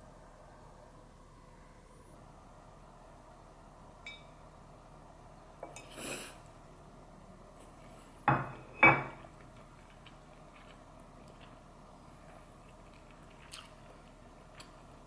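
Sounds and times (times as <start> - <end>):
tableware clinking: 4.1 - 4.4, 8.3 - 9.3.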